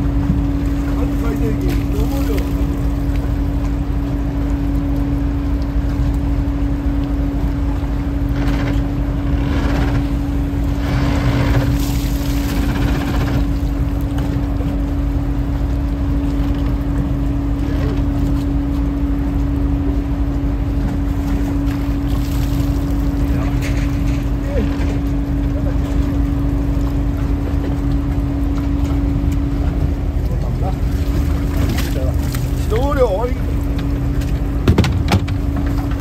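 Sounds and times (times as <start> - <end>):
boat engine running: 0.0 - 36.0
water pouring into a basket: 22.0 - 23.2.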